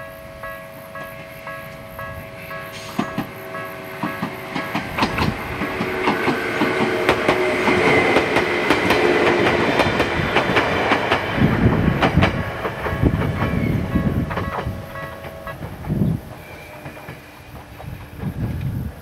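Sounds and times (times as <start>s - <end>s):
level crossing warning bell: 0.0s - 7.5s, 13.3s - 15.6s
train wheels clicking over rail joints: 0.0s - 19.0s.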